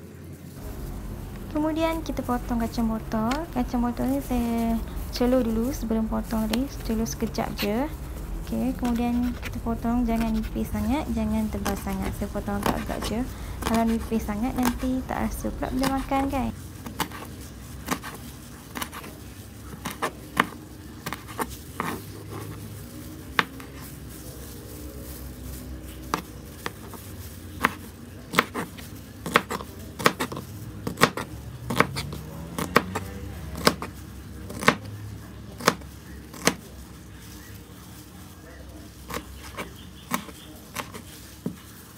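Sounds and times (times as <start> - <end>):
knife chopping on plastic board: 27.6 - 33.9, 34.5 - 34.9, 35.6 - 36.6.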